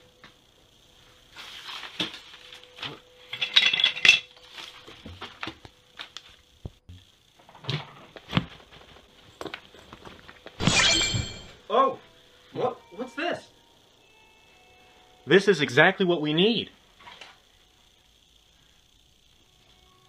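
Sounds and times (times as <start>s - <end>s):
objects knocking and clinking: 10.6s - 11.6s.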